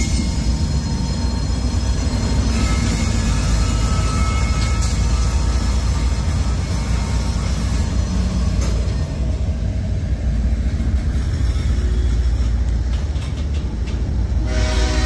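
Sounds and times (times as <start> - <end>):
freight train rumbling past: 0.0 - 15.0
train wheel clicks: 7.6 - 9.0, 10.6 - 14.5.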